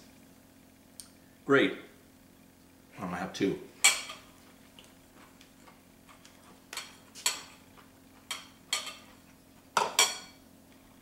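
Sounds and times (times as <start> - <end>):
fork clinking on ceramic bowl: 8.3 - 9.2.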